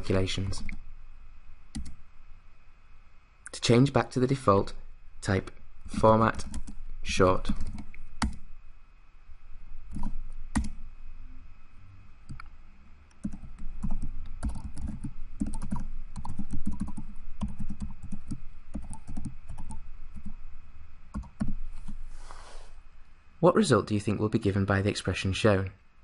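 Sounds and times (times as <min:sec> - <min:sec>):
typing on computer keyboard: 0:09.9 - 0:10.8, 0:13.2 - 0:20.4, 0:21.2 - 0:21.6.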